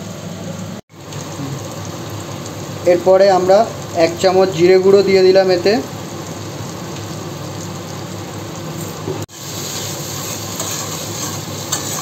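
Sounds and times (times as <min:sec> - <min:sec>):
spice paste sizzling in oil: 0:00.0 - 0:12.0.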